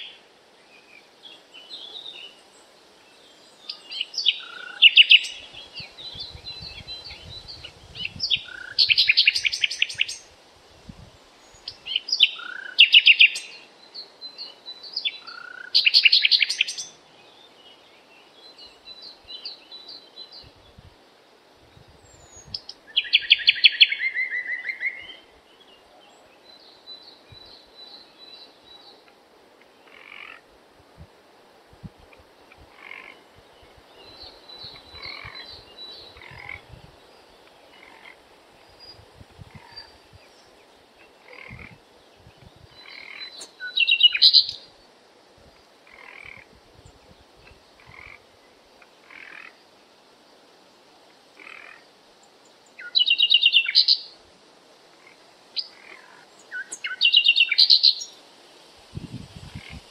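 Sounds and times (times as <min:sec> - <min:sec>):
faint bird chirps: 0:51.4 - 0:54.2, 0:55.0 - 0:58.2.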